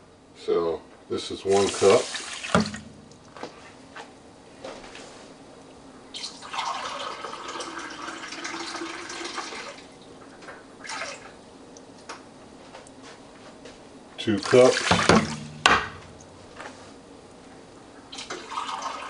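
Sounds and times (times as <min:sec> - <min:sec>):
water pouring into pan: 0:01.5 - 0:02.9, 0:06.2 - 0:09.8, 0:18.2 - 0:19.0
water dripping: 0:01.6 - 0:03.4, 0:14.4 - 0:16.4.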